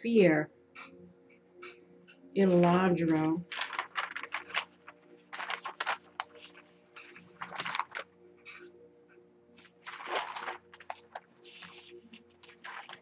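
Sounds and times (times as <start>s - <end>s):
paper pages rustling: 2.4s - 8.6s, 9.6s - 13.0s.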